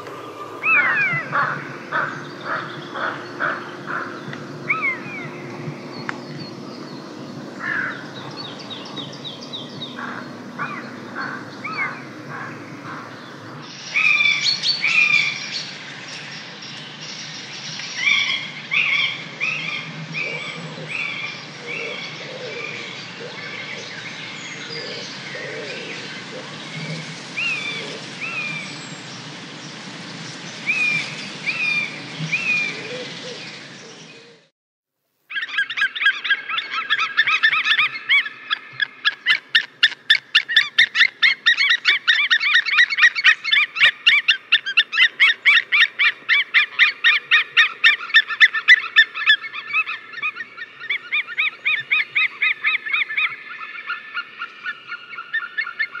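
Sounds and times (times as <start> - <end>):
birds chirping: 0.0 - 34.5, 35.3 - 56.0
outdoor background noise: 0.0 - 56.0
rapid high-pitched bird calls: 0.1 - 15.7, 35.3 - 56.0.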